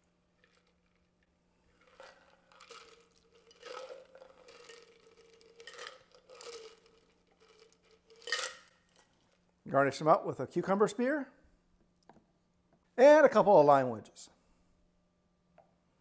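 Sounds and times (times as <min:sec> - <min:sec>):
liquid pouring into glasses: 0:01.8 - 0:09.1.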